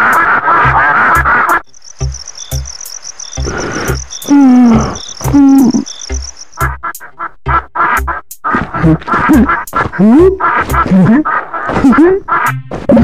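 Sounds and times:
loud cartoon music: 0:00.0 - 0:02.8, 0:03.4 - 0:11.2
low beat: 0:00.0 - 0:11.2
crickets chirping: 0:01.6 - 0:06.6
cartoon duck quacking: 0:03.4 - 0:13.0.

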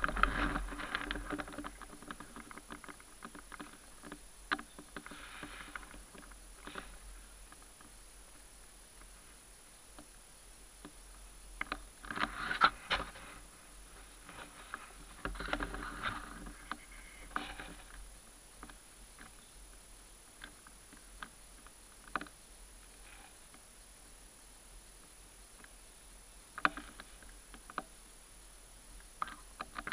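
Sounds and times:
dry leaves and twigs crackling: 0:00.0 - 0:10.1, 0:10.7 - 0:22.4.

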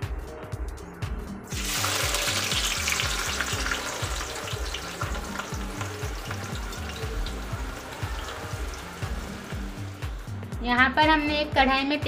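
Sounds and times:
onions sizzling in hot oil: 0:01.5 - 0:10.1.

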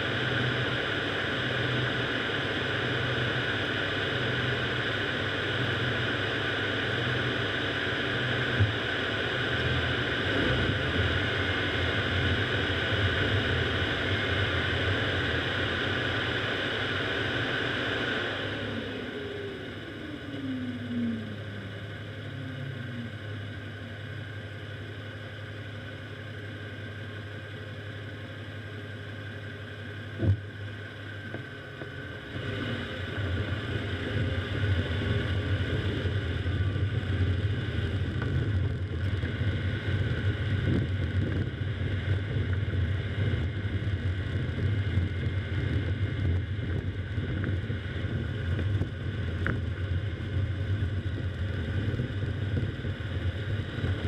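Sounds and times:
falling whine: 0:00.0 - 0:27.3
car engine and tyre noise: 0:00.0 - 0:54.0.

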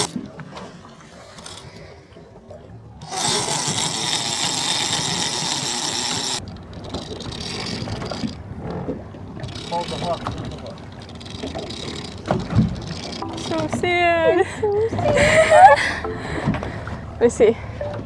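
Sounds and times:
boat engine running: 0:00.0 - 0:18.0
fishing reel drag buzzing: 0:03.0 - 0:08.4.

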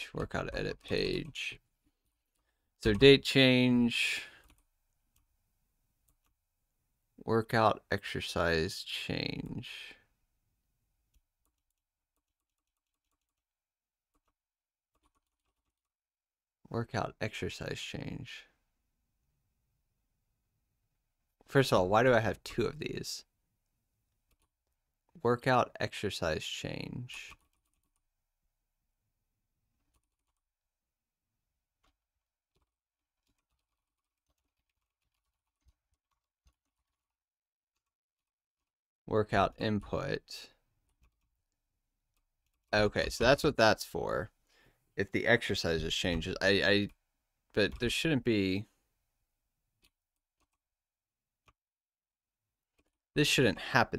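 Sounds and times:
faint keyboard typing: 0:00.1 - 0:03.4, 0:04.2 - 0:05.3, 0:06.0 - 0:06.4, 0:11.1 - 0:16.0, 0:24.2 - 0:24.8, 0:26.8 - 0:28.1, 0:29.7 - 0:30.5, 0:31.8 - 0:37.2, 0:37.8 - 0:38.7, 0:40.8 - 0:43.3, 0:49.8 - 0:50.7.

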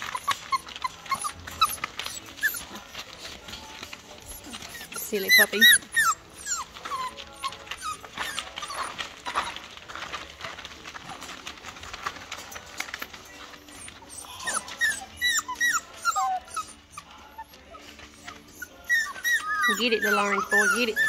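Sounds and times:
puppies scuffling on plastic: 0:00.0 - 0:21.0
puppies whimpering: 0:00.0 - 0:21.0.

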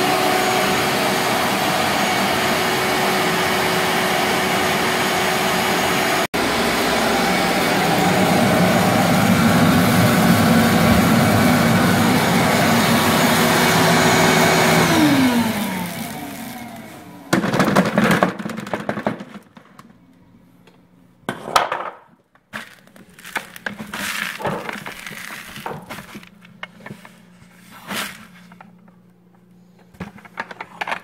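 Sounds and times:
vacuum motor spinning down: 0:00.0 - 0:17.3
shop vacuum running: 0:00.0 - 0:19.4, 0:22.6 - 0:31.0.

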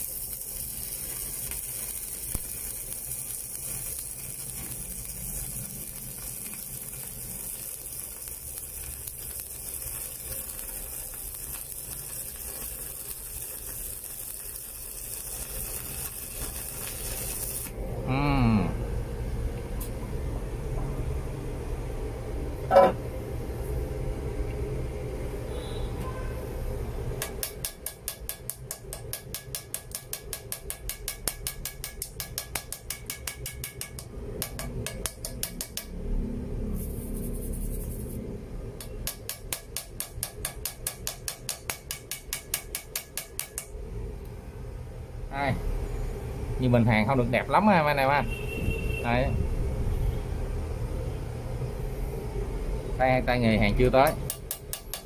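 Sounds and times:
welding arc crackling: 0:00.0 - 0:17.8, 0:36.6 - 0:43.8
chipping hammer tapping metal: 0:27.2 - 0:36.0, 0:38.8 - 0:43.7, 0:54.0 - 0:55.0.

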